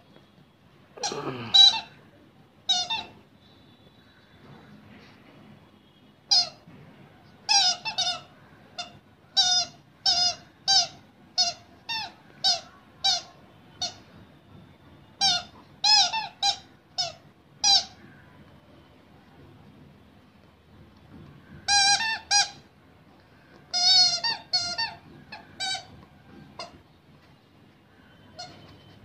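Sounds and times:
rubber squeaky toy squeaking: 1.0s - 2.0s, 2.6s - 3.3s, 6.3s - 6.7s, 7.4s - 14.2s, 15.2s - 18.2s, 21.6s - 22.8s, 23.7s - 27.0s, 28.1s - 29.0s.

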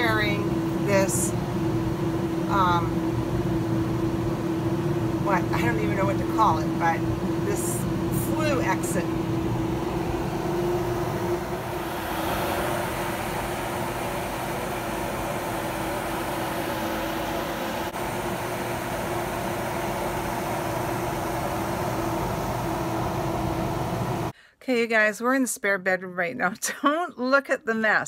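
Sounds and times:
exhaust fan humming: 0.0s - 24.4s
air whooshing through duct: 7.0s - 24.3s.

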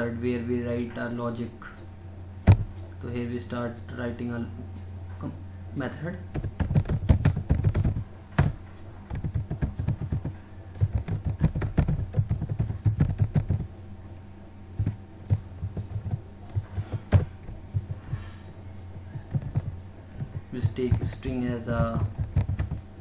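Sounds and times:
low steady hum: 0.0s - 23.0s
typing on keyboard: 6.3s - 13.7s, 15.6s - 18.2s, 19.1s - 22.8s.

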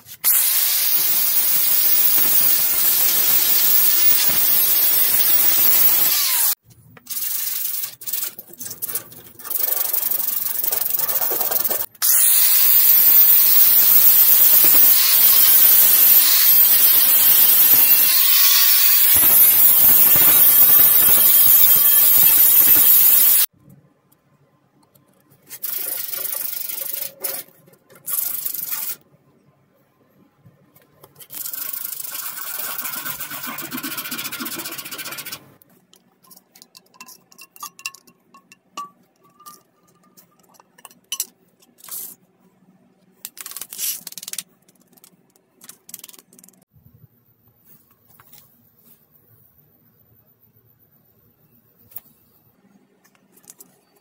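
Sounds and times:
angle grinder grinding metal: 0.2s - 6.6s, 11.6s - 23.5s.

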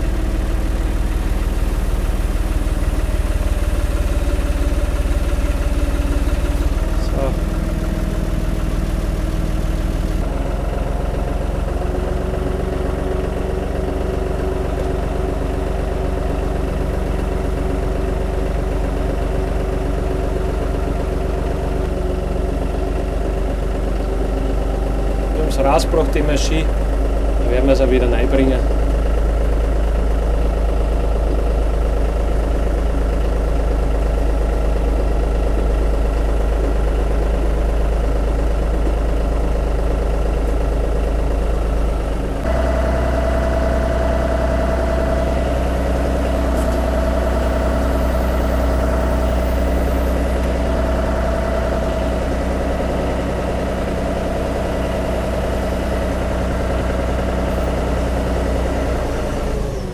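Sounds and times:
tractor diesel engine running: 0.0s - 59.9s
steady whine: 21.5s - 32.5s, 38.2s - 59.9s.

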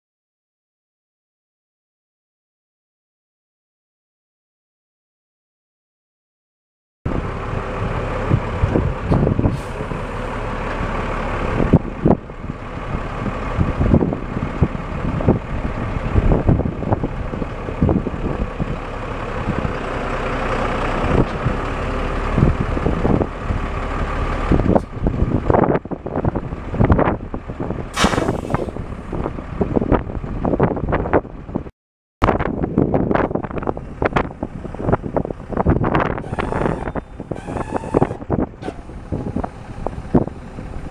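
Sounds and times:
diesel truck engine idling: 7.1s - 31.7s, 32.5s - 40.9s.

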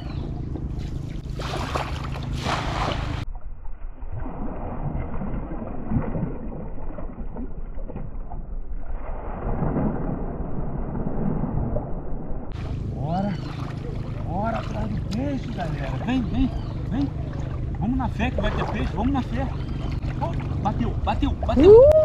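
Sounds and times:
water sloshing and splashing: 0.0s - 10.8s, 12.5s - 22.0s
net splashing onto water: 0.8s - 3.3s.

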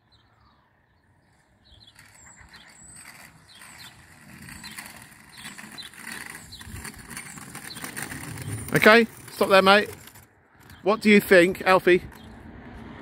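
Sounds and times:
bird chirps: 0.0s - 8.7s
kick scooter rolling on pavement: 0.1s - 13.0s.

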